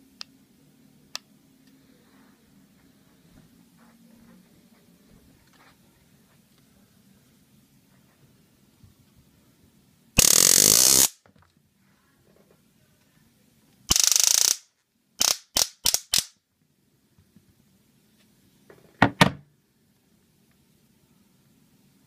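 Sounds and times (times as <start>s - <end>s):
stun gun crackling zaps: 10.2s - 11.2s, 13.9s - 16.4s.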